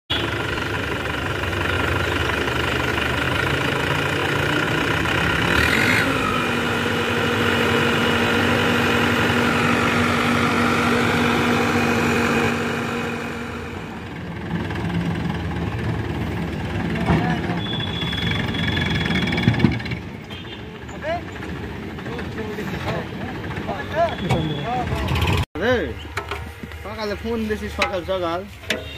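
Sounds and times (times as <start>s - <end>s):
diesel tractor engine running: 0.1s - 28.9s.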